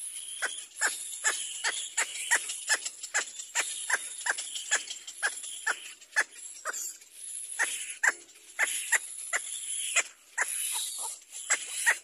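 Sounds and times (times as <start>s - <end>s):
bird chicks begging cries: 0.0s - 12.0s.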